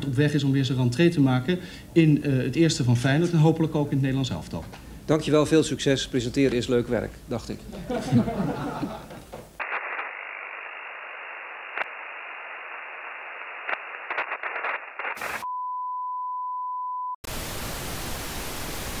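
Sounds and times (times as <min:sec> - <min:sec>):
loud tv static: 0:09.6 - 0:15.5.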